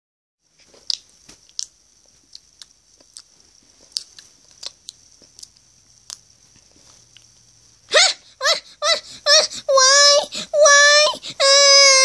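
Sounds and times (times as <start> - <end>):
faint steady hiss: 0.4 - 12.0.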